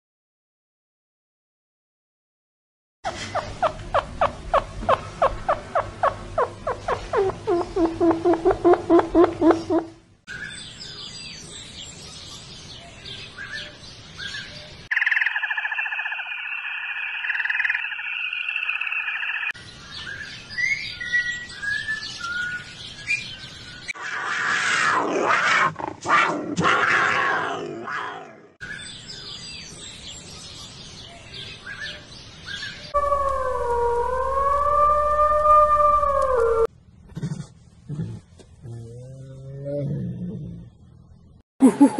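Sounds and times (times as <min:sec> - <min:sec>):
birds chirping: 0:03.1 - 0:24.0
wild canid howling: 0:32.9 - 0:36.7
shrill buzz: 0:33.0 - 0:36.7.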